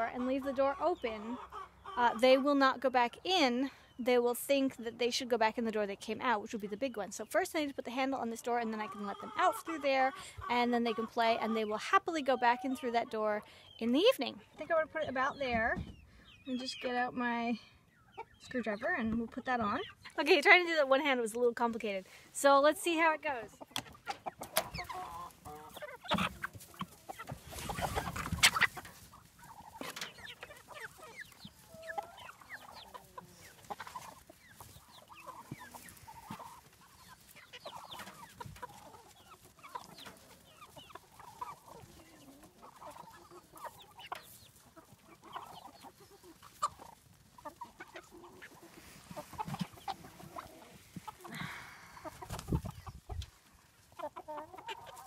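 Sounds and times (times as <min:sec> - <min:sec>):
chickens clucking: 0:00.0 - 0:55.0.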